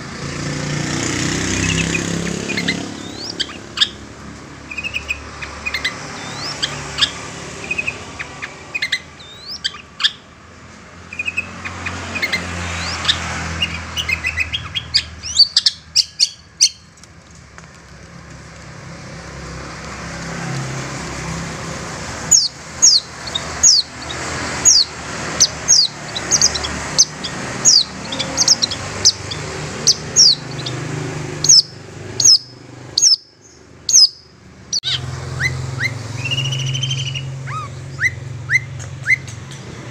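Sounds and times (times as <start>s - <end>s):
bird chirping and whistling: 1.6s - 4.0s, 4.7s - 10.2s, 11.1s - 16.9s, 22.3s - 30.8s, 31.4s - 39.3s.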